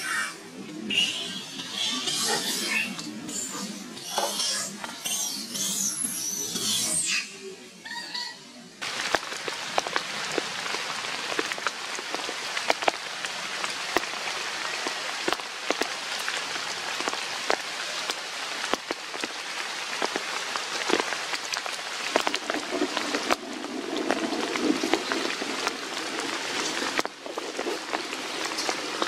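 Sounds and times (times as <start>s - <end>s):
rain hissing: 8.8s - 29.0s
raindrop hits: 8.8s - 29.0s.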